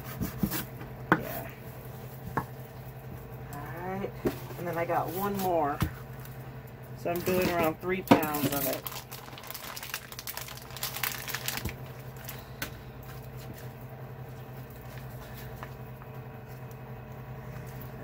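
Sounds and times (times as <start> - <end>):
low steady hum: 0.0 - 18.0
plastic packaging crinkling: 7.1 - 16.9
soft squishes of raw meat: 9.0 - 18.0.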